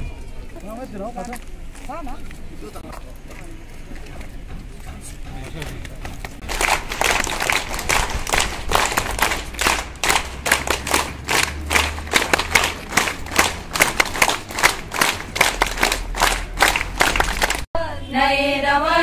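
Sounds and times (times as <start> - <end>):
group clapping in rhythm: 6.1 - 17.7.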